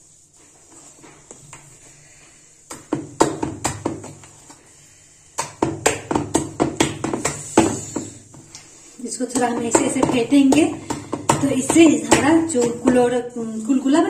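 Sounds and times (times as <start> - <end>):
batter slapping against steel bowl: 2.6 - 4.6, 5.3 - 13.2.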